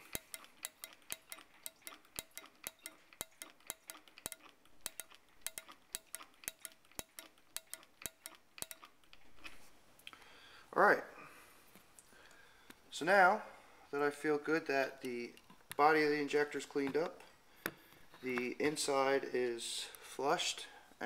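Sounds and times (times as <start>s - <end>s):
fuel injector clicking: 0.0s - 9.2s.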